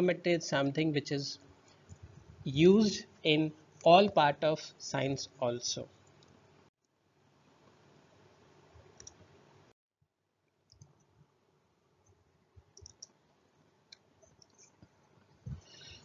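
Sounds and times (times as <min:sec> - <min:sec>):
soft clicks: 0:12.6 - 0:13.2.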